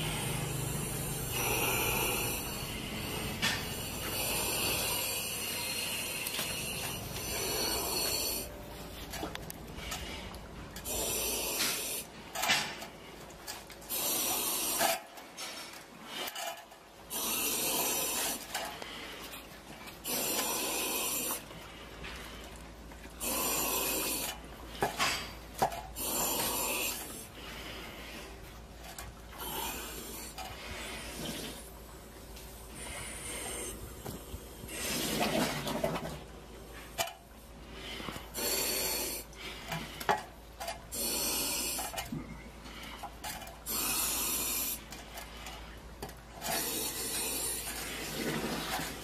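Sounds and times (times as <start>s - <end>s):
heavy hissing breathing: 0.0s - 13.2s, 13.8s - 35.5s, 36.5s - 48.2s.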